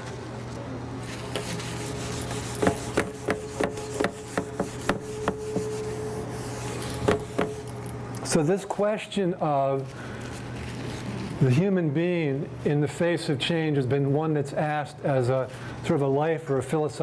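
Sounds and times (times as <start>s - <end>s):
wiping a whiteboard: 1.0s - 7.7s.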